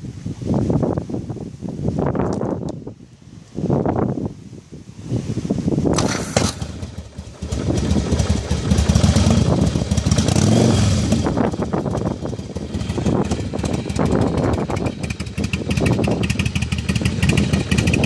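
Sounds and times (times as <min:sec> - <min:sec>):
motorcycle engine revving: 0:05.9 - 0:18.0.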